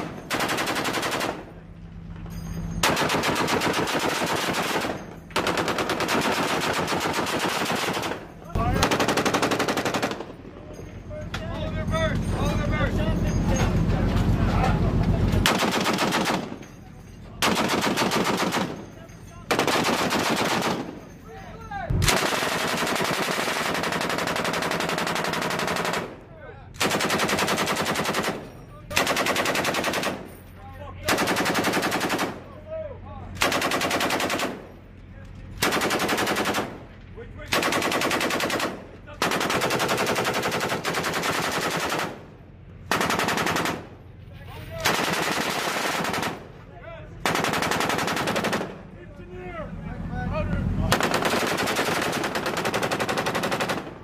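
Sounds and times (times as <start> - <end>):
machine gun bursts: 0.0 - 1.5, 2.8 - 10.4, 15.4 - 16.6, 17.4 - 18.9, 19.5 - 21.0, 22.0 - 26.1, 26.8 - 30.3, 31.1 - 32.4, 33.4 - 34.7, 35.6 - 36.8, 37.5 - 42.2, 42.9 - 43.9, 47.2 - 48.8, 50.9 - 54.0.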